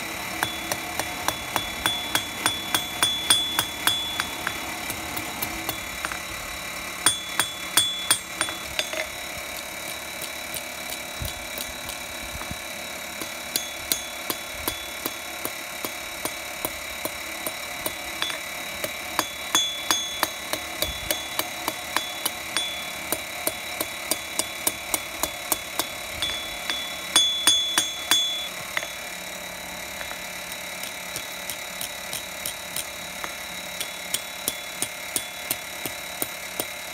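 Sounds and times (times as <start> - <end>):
anvil ringing: 0.3 - 9.4, 13.2 - 16.4, 17.4 - 29.3, 33.2 - 36.7
hammer blows on hot steel: 0.3 - 9.6, 13.2 - 29.2.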